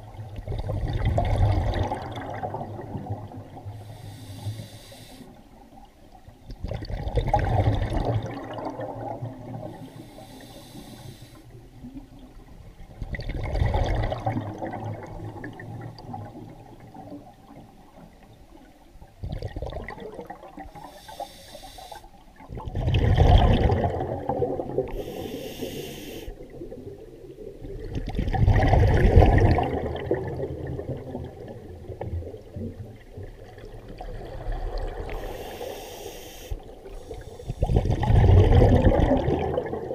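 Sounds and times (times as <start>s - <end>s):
exhaled bubbles rushing: 0.0s - 3.7s, 6.5s - 9.8s, 12.9s - 17.4s, 19.2s - 20.8s, 22.4s - 25.0s, 26.4s - 35.2s, 37.5s - 39.9s
regulator hissing inhale: 3.8s - 5.5s, 9.8s - 11.6s, 20.8s - 22.2s, 24.9s - 26.4s, 35.1s - 37.9s.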